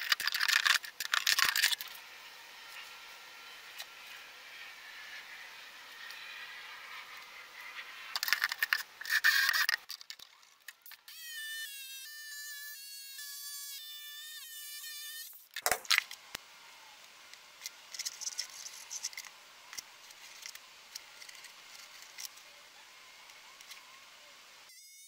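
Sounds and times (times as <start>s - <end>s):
electric jigsaw whine: 1.5s - 8.0s.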